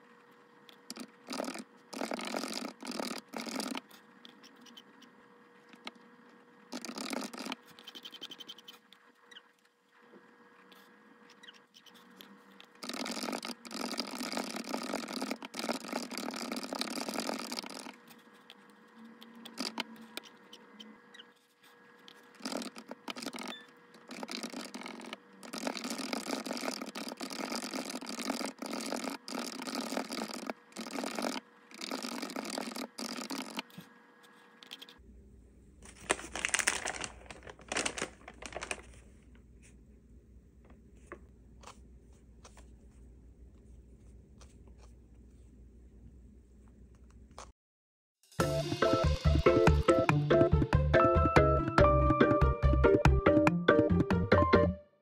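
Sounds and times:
mechanical keyboard typing: 0:00.9 - 0:03.9, 0:06.8 - 0:08.6, 0:12.8 - 0:18.0, 0:22.4 - 0:33.7.

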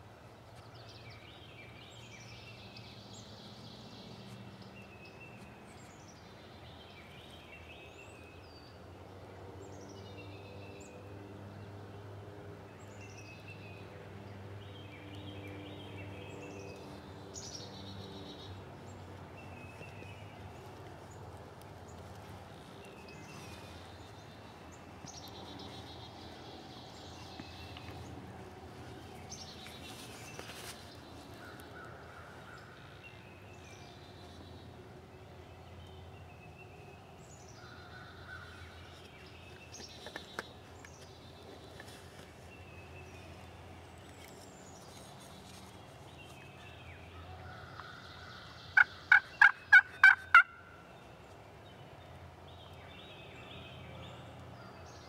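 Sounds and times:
wild turkey yelping: 0:48.8 - 0:50.6.

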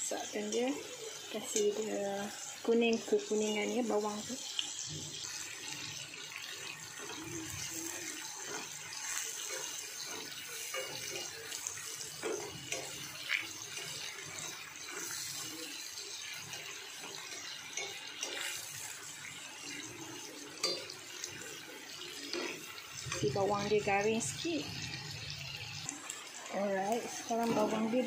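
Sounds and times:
food sizzling in hot fat: 0:00.0 - 0:28.0
spatula scraping pan: 0:07.0 - 0:19.1.

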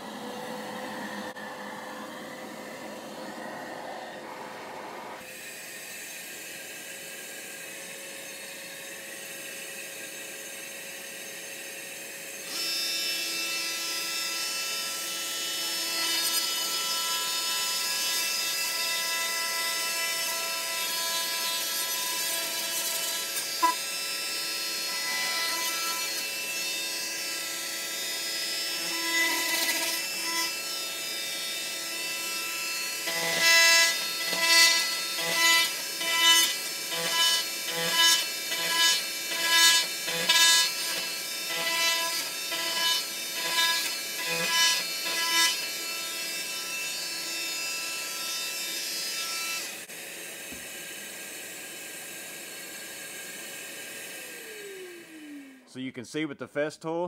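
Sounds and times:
vacuum running: 0:00.0 - 0:13.4, 0:49.7 - 0:55.8
oscillating tool cutting drywall: 0:00.0 - 0:55.7.

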